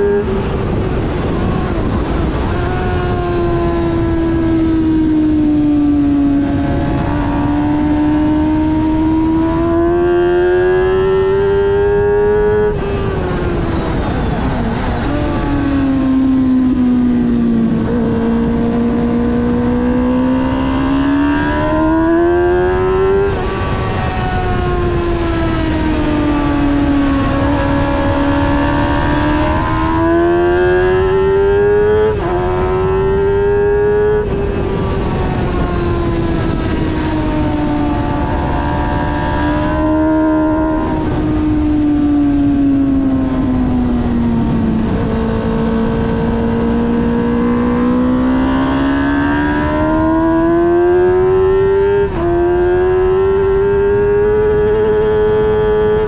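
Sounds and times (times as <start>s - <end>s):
motorcycle engine accelerating: 0.0s - 56.0s
wind and road noise: 0.0s - 56.0s.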